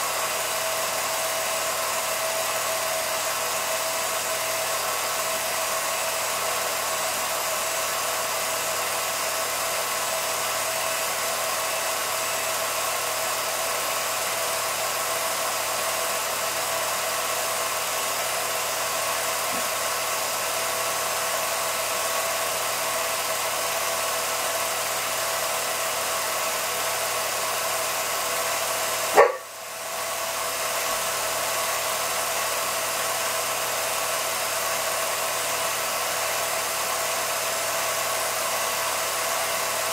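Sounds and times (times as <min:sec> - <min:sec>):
film projector motor whirring: 0:00.0 - 0:39.9.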